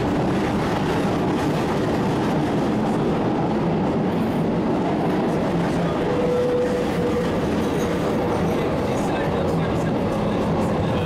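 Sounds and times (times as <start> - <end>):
train wheels on rail: 0.0 - 11.0.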